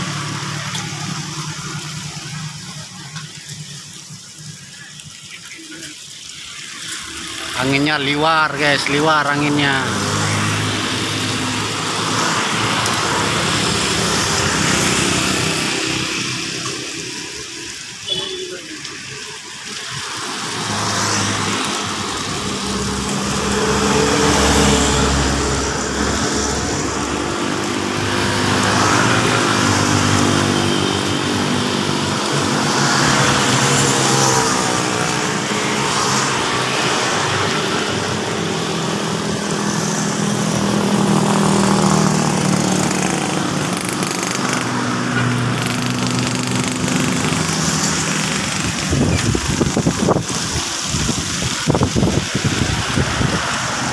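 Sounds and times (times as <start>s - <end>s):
motorbikes and cars passing: 0.0s - 53.9s
small engine running: 39.4s - 50.6s
gusty wind noise: 48.4s - 53.9s.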